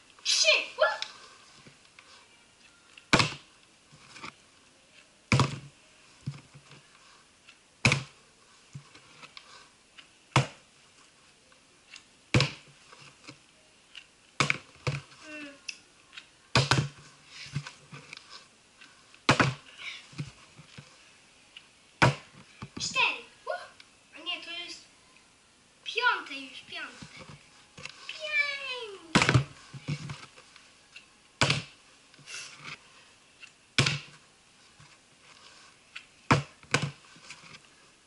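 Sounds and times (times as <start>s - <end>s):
plastic bottle landing on wooden floor: 5.3s - 5.7s.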